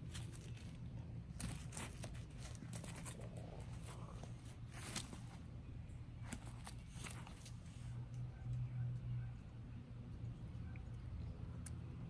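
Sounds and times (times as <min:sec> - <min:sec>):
puppy rustling in dry leaves: 0:00.0 - 0:05.5
steady low rumble: 0:00.0 - 0:12.0.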